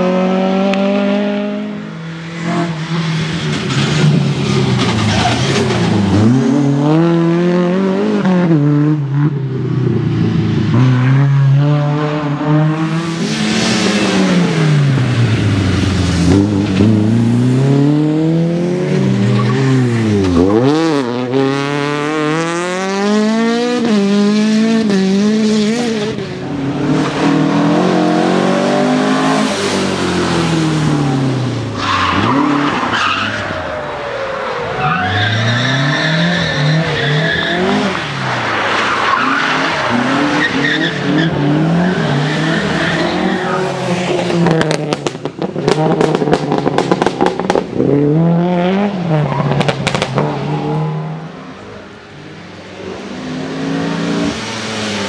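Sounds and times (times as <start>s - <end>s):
rally car engines at full throttle: 0.0s - 55.0s
tyres squealing and skidding: 2.6s - 6.5s, 19.2s - 20.9s, 29.0s - 44.5s.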